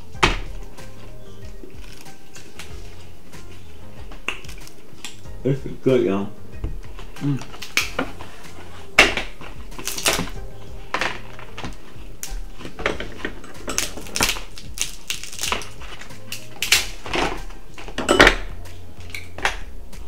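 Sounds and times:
crab shell cracking: 0:01.7 - 0:02.7, 0:04.2 - 0:05.2, 0:07.4 - 0:08.1, 0:09.0 - 0:10.4, 0:13.7 - 0:18.0.

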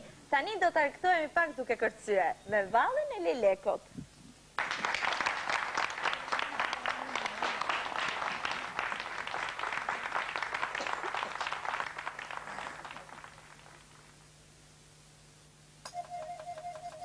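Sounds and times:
audience applauding: 0:04.6 - 0:14.2.

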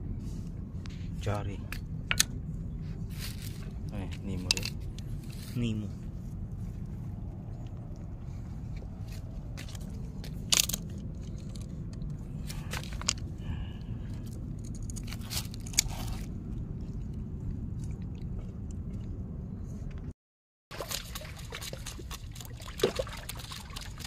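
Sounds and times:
steady low rumble: 0:00.0 - 0:20.2
fish scraping and rustling on rocks: 0:14.7 - 0:16.4.

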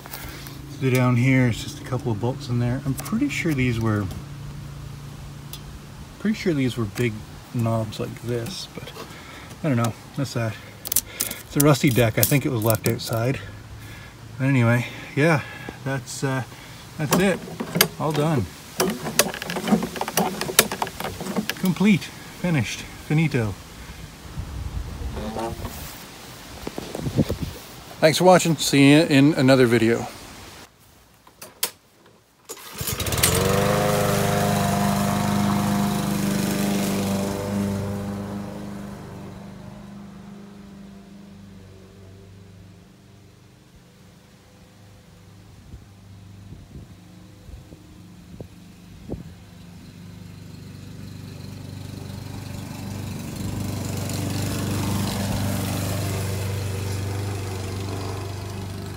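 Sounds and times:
mower engine starting and running: 0:00.0 - 0:24.0, 0:25.0 - 0:26.0, 0:32.4 - 0:43.2, 0:48.0 - 0:58.9.

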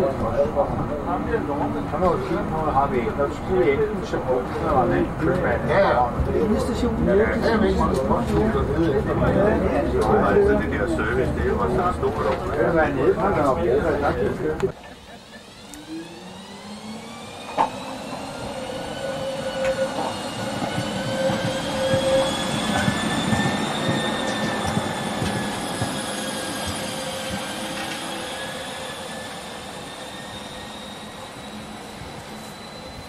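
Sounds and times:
wheels rumbling on rail: 0:00.0 - 0:33.0
tram wheels squealing: 0:14.9 - 0:33.0.

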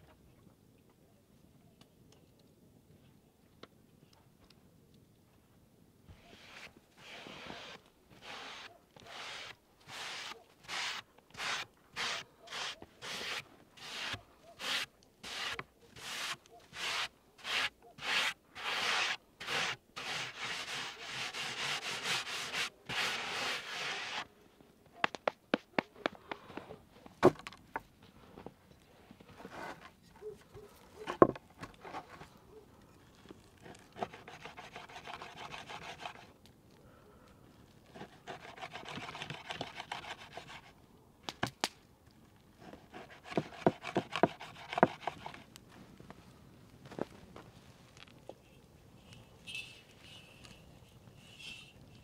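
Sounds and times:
hand scraping rasp: 0:06.2 - 0:24.3, 0:33.6 - 0:36.3, 0:38.0 - 0:40.7, 0:42.6 - 0:45.5.

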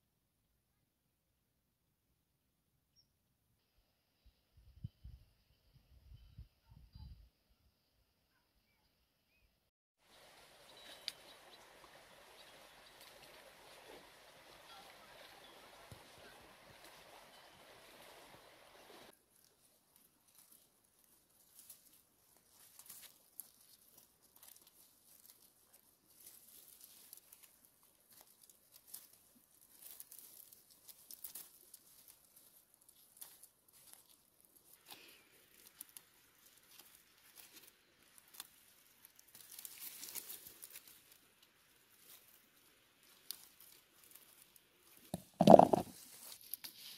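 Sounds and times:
small clicks and leaf rustles: 0:10.1 - 0:46.9
bramble rustling and crackling: 0:19.1 - 0:46.9.

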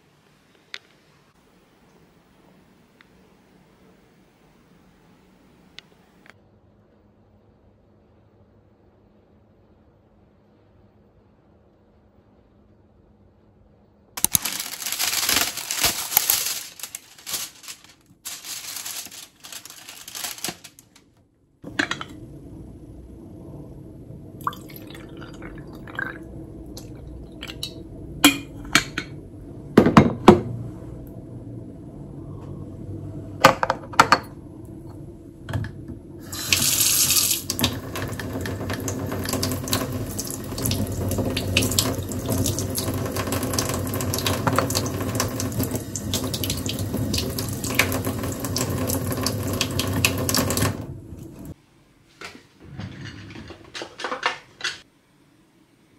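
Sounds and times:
water poured into a glass: 0:24.4 - 0:27.8.

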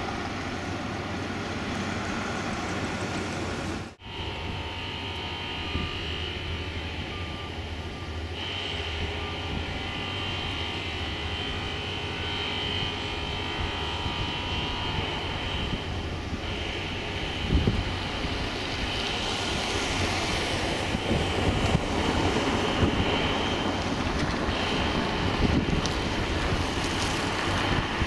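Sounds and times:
turboprop engines whining: 0:00.0 - 0:28.0.

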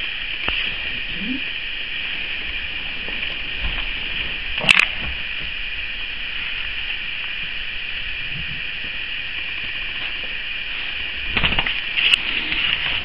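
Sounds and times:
high-pitched recording hiss: 0:00.0 - 0:13.0.

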